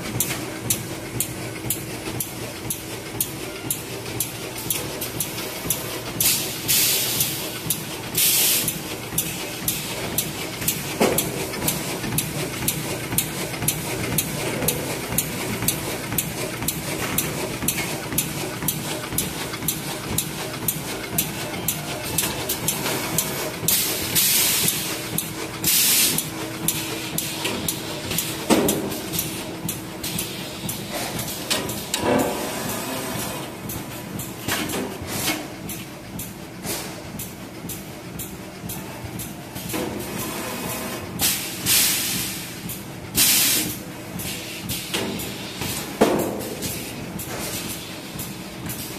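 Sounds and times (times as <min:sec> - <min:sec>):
bag making machine clatter: 0:00.0 - 0:48.9
air hiss bursts: 0:43.2 - 0:43.7.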